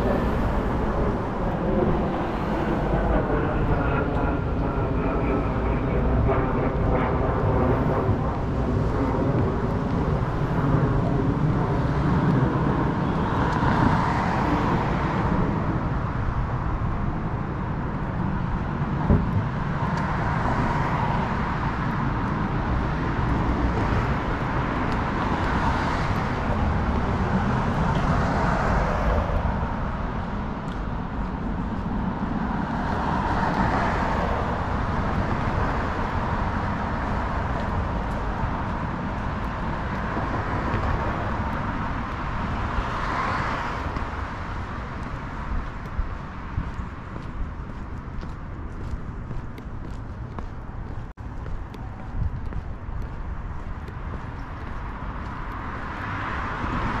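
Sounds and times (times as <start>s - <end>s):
cars passing: 0.0s - 57.0s
outdoor background noise: 0.0s - 57.0s.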